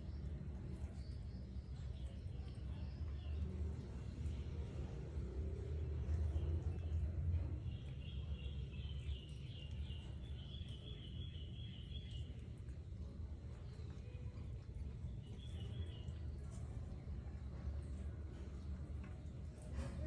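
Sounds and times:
low background rumble: 0.0s - 20.0s
bird chirping: 5.6s - 16.8s.

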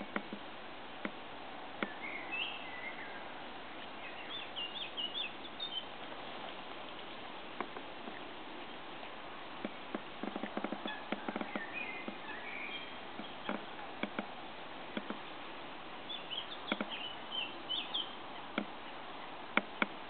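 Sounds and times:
steady hiss: 0.0s - 20.0s
small birds chirping: 1.8s - 9.7s, 10.3s - 14.2s, 16.0s - 19.8s.

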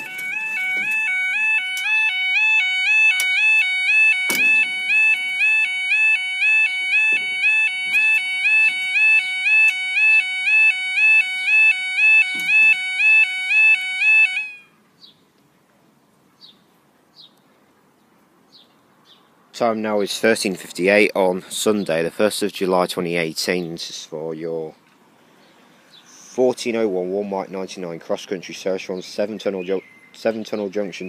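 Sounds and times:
two-tone warbling crossing alarm: 0.0s - 14.7s
sharp knocks: 4.2s - 5.6s, 6.8s - 9.0s, 12.2s - 12.8s.

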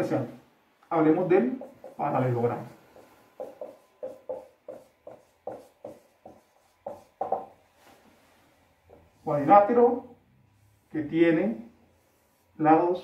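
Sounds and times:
marker squeaking on whiteboard: 1.5s - 7.6s.

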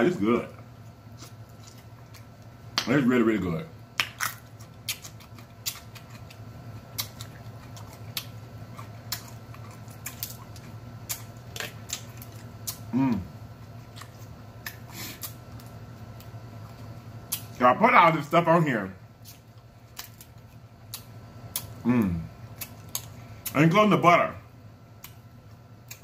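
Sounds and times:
food being chewed: 0.7s - 2.9s, 4.0s - 12.9s, 13.5s - 17.6s, 19.2s - 23.6s
crab legs cracking: 4.0s - 12.9s, 19.2s - 21.8s, 22.5s - 23.6s
person moaning mm: 12.9s - 13.3s, 21.8s - 22.3s.

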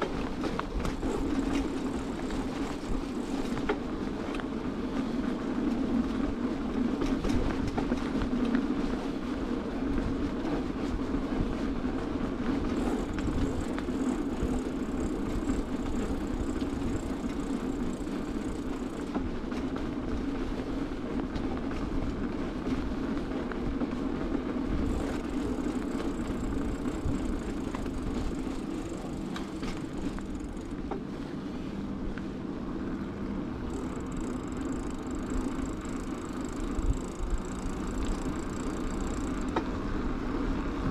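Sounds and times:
bike rattling over bumps: 0.0s - 32.6s, 33.6s - 40.8s
bicycle tyres rolling over pavement: 0.0s - 40.9s.

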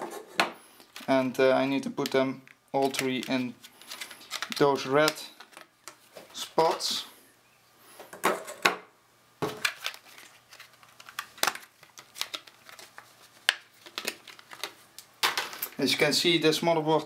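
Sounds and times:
hard plastic clicking and crinkling: 0.8s - 6.0s, 9.4s - 15.8s.

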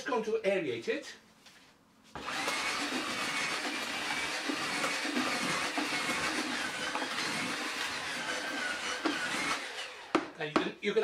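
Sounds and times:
cordless drill whining: 2.2s - 10.3s.

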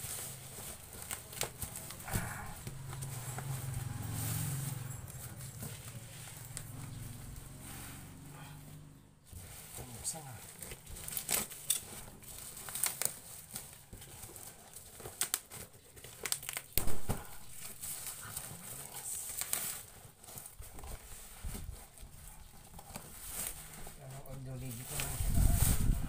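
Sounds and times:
packaging crinkling and tearing: 0.0s - 7.3s, 9.4s - 26.0s.

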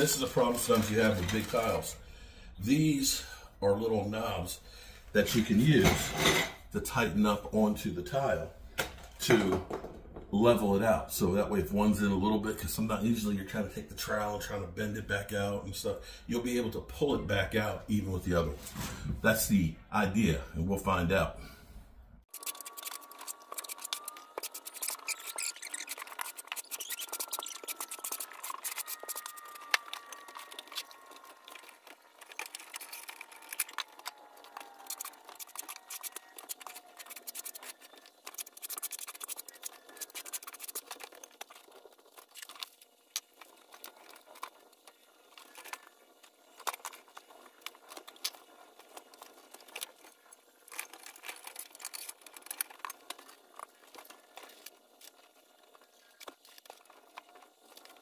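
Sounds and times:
tiles and spacers clicking: 22.3s - 44.6s
trowel scraping mortar: 22.3s - 54.9s.

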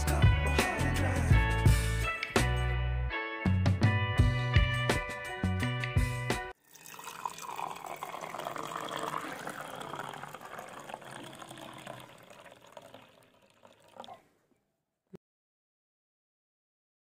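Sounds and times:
tea pouring into glass: 6.6s - 14.2s.

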